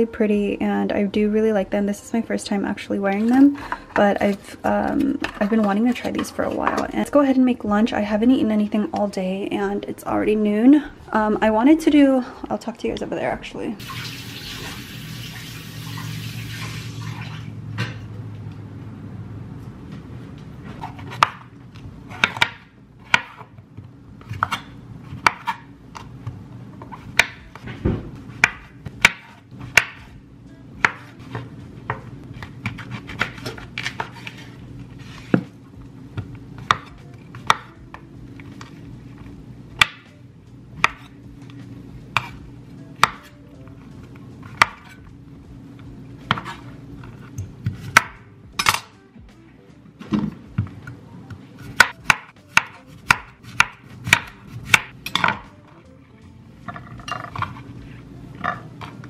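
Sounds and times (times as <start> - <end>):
knife chopping on wooden board: 20.8 - 21.5, 22.1 - 23.5, 24.2 - 25.6, 26.8 - 30.1, 36.2 - 37.7, 40.8 - 41.1, 43.0 - 43.3, 44.6 - 45.0, 47.6 - 48.2, 51.7 - 55.5.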